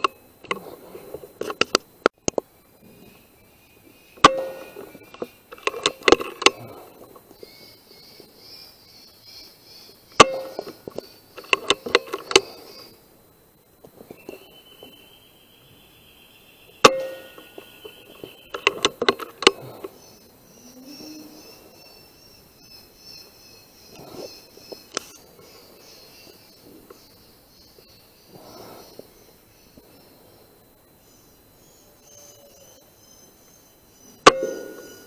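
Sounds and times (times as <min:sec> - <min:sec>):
faint high chirping: 0:01.8 - 0:35.0
air rifle shots: 0:04.2 - 0:05.0, 0:10.2 - 0:10.8, 0:34.2 - 0:35.0
metallic clicks of reloading: 0:04.2 - 0:06.8, 0:10.2 - 0:12.6.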